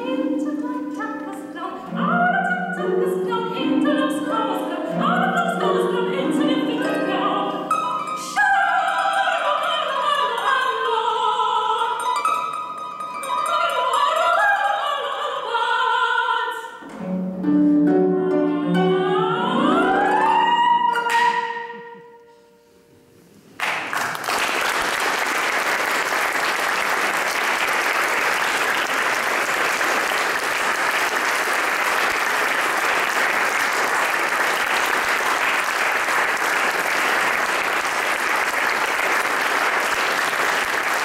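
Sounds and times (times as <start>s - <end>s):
audience applauding: 23.6s - 41.0s.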